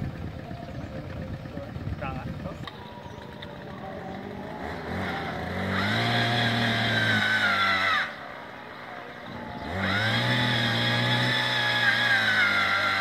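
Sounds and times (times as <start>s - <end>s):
earth auger engine revving: 0.0s - 13.0s.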